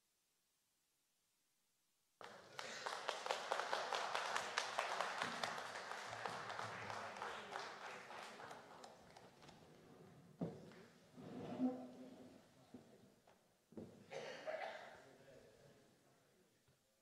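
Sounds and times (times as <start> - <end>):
audience applauding: 2.2 - 9.7.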